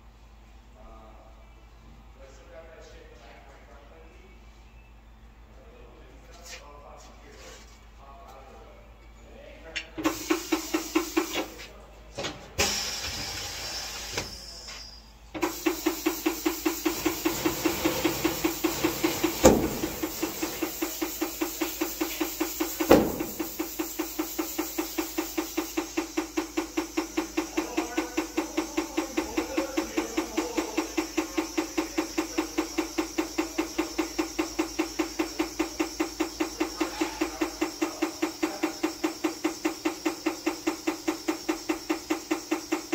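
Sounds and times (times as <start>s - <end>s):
tire-changer machine humming and ticking: 9.9s - 11.7s, 12.6s - 42.9s
sharp knocks: 16.6s - 20.7s, 21.7s - 23.9s.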